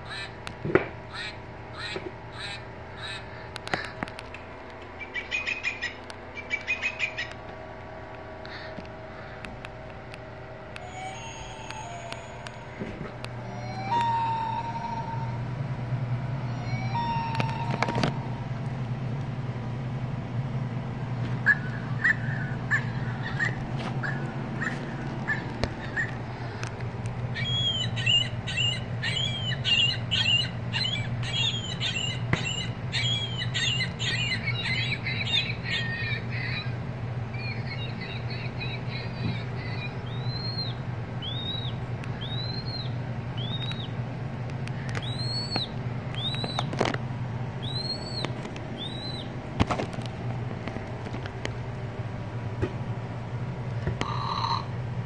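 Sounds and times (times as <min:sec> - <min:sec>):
recorded bird calls from toys: 0:00.0 - 0:00.4, 0:01.1 - 0:04.0, 0:04.9 - 0:07.4, 0:13.5 - 0:15.4, 0:16.5 - 0:17.8, 0:21.4 - 0:26.2, 0:27.3 - 0:44.0, 0:44.8 - 0:46.7, 0:47.6 - 0:49.4, 0:54.0 - 0:54.7.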